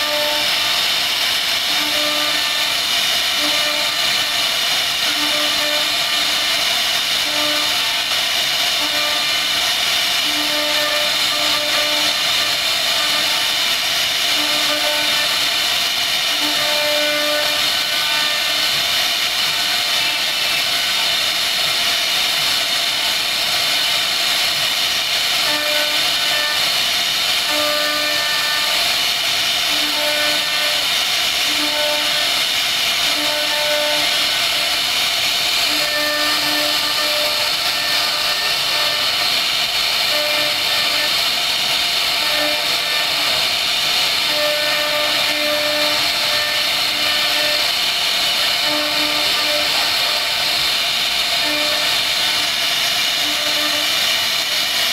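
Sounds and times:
router spindle high whine: 35.8 - 39.2, 40.3 - 41.1, 42.2 - 43.4, 48.5 - 50.6.

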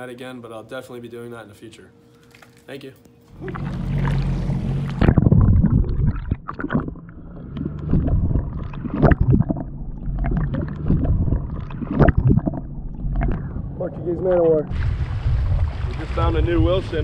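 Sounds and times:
low steady hum: 0.0 - 17.0
water splashing: 3.3 - 13.8, 14.6 - 17.0
underwater sloshing and gurgling: 3.3 - 17.0.

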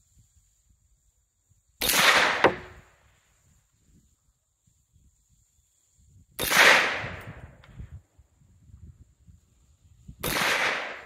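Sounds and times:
rifle shot echoing: 1.8 - 2.8, 10.2 - 11.0.

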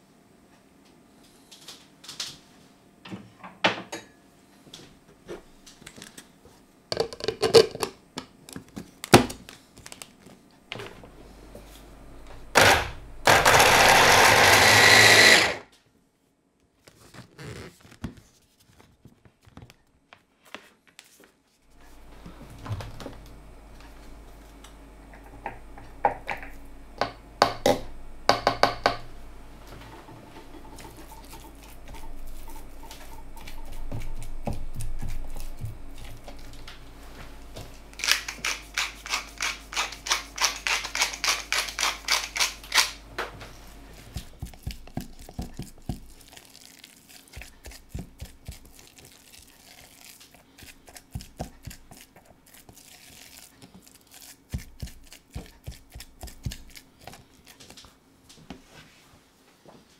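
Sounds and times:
pepper mill grinding: 12.6 - 15.6, 37.9 - 43.0, 44.2 - 57.6.

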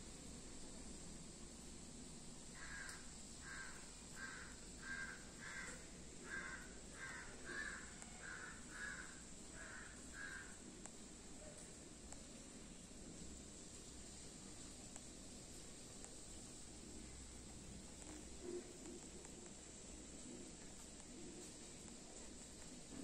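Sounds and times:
crow cawing: 2.6 - 10.6.

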